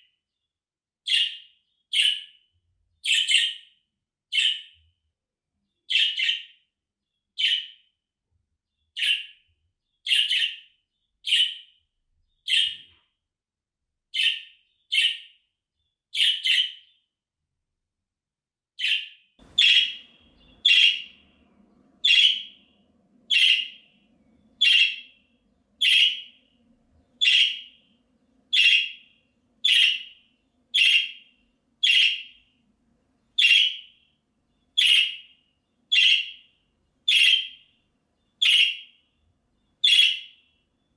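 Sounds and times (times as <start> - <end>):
budgerigar calling: 10.1 - 10.6, 18.8 - 21.2, 22.0 - 22.6, 23.3 - 23.9, 24.6 - 25.1, 25.8 - 26.4, 27.2 - 27.8, 28.5 - 29.0, 29.6 - 31.2, 31.8 - 32.4, 33.4 - 33.9, 34.8 - 35.3, 35.9 - 36.4, 37.1 - 37.6, 38.4 - 38.9, 39.8 - 40.4
faint low hum: 19.4 - 40.9.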